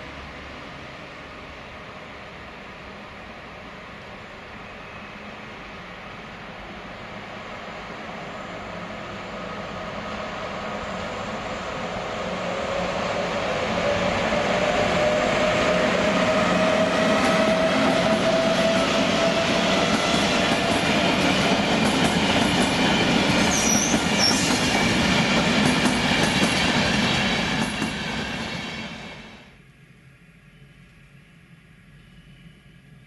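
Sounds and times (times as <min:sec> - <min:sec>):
train wheels rolling on rails: 0:00.0 - 0:29.4
high wheel squeal: 0:23.5 - 0:24.5.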